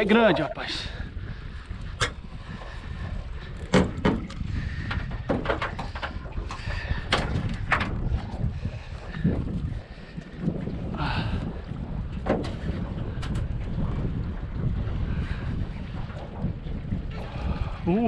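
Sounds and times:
wind rumbling on microphone: 0.0s - 18.0s
sharp clicks and knocks: 3.7s - 8.0s.

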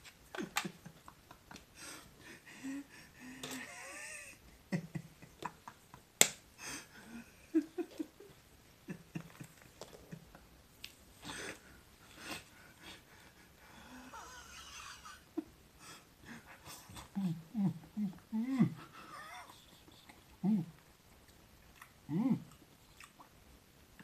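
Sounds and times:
man laughing breathily: 0.3s - 6.0s, 6.6s - 10.4s, 11.2s - 20.7s.

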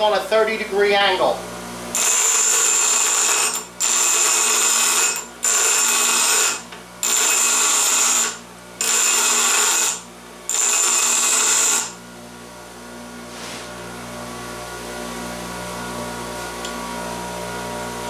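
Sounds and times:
grinder motor hum: 0.8s - 18.0s
grinder wheel grinding metal pipe: 1.9s - 12.0s.

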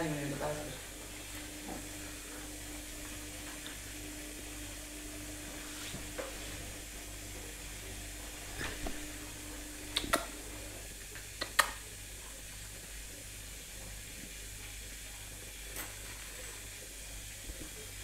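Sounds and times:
low hum: 0.0s - 10.9s.

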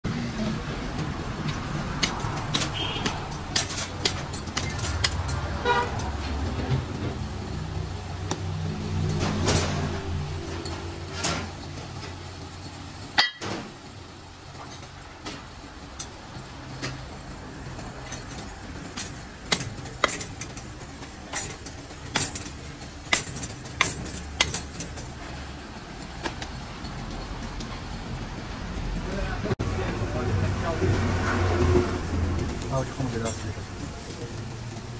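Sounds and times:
vehicle horn toot: 2.6s - 3.2s, 5.6s - 6.0s.

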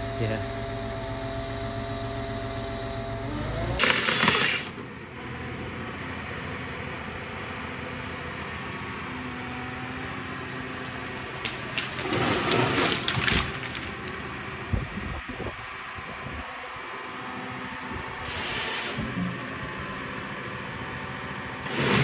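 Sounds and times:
harvester head processing log: 3.3s - 5.0s, 10.4s - 15.9s, 21.6s - 22.0s.

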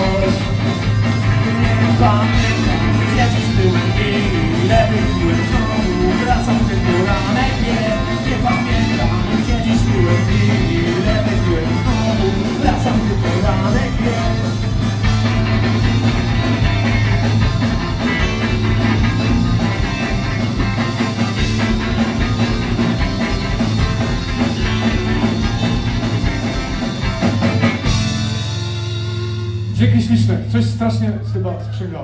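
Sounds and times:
person singing: 0.0s - 14.6s
drum kit: 0.0s - 30.8s
electric guitars: 0.0s - 31.8s
bass guitar: 0.0s - 32.0s.

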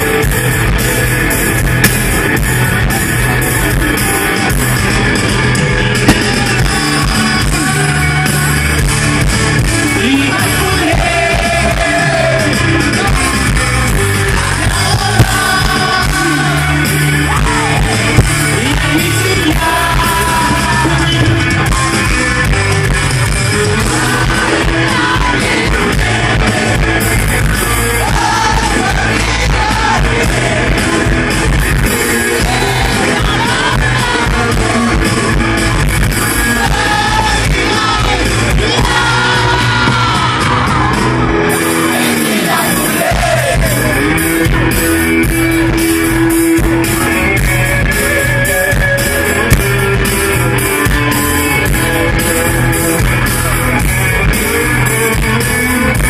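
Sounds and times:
live rock band: 0.0s - 56.0s
man singing: 5.8s - 8.8s, 9.8s - 22.2s.

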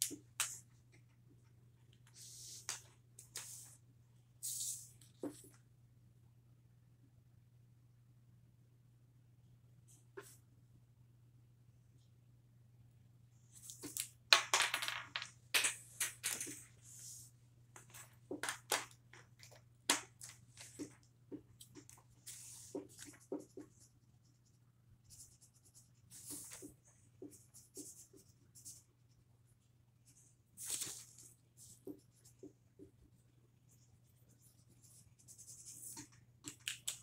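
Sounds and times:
marker scratching on paper: 20.6s - 29.0s, 33.7s - 36.2s.

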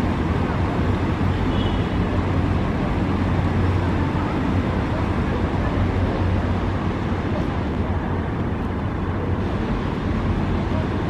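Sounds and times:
boat engine humming: 0.0s - 11.0s
water noise: 0.0s - 11.0s.

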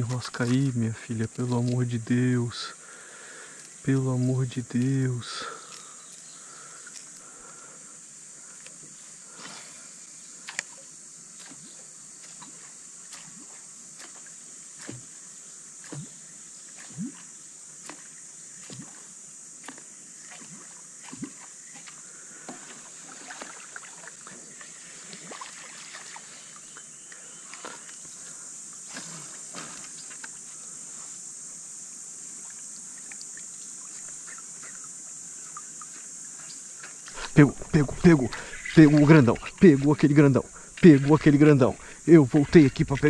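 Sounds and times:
high insect drone: 0.0s - 43.0s.

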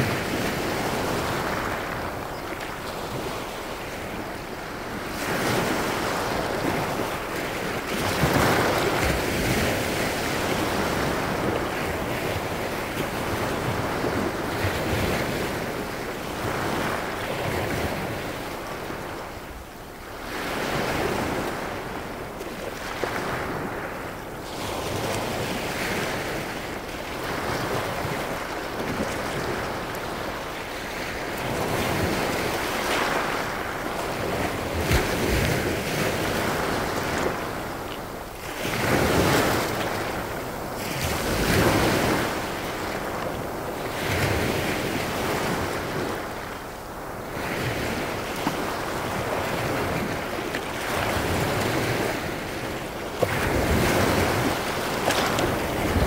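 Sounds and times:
waves washing over pebbles: 0.0s - 19.1s, 20.0s - 56.0s.

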